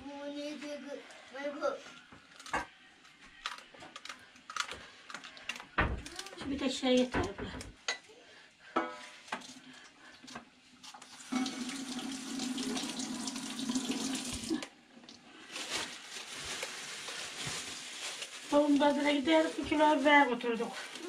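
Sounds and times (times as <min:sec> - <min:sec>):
tap water running into sink: 0:11.0 - 0:14.6.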